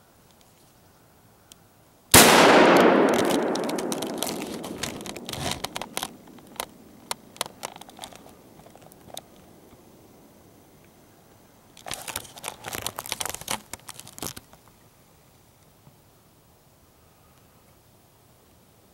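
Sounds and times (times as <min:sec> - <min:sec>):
loud gunshot with echo: 0:02.2 - 0:05.8
clicks and rustles: 0:02.7 - 0:09.8, 0:11.8 - 0:14.8.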